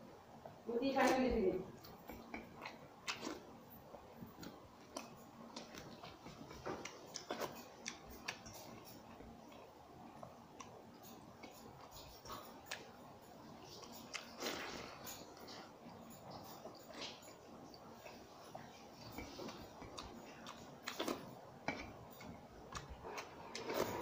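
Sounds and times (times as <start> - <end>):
chewing clicks: 1.0 - 3.5, 4.2 - 12.9.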